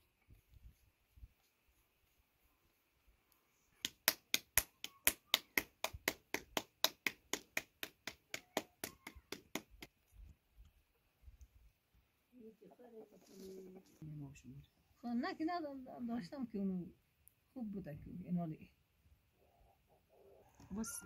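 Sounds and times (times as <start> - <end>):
rapid sharp taps: 3.8 - 9.9.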